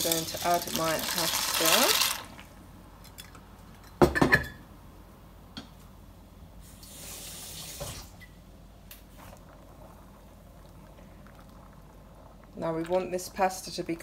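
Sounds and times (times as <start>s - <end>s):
water boiling in a pan: 0.0s - 2.6s, 6.7s - 14.0s.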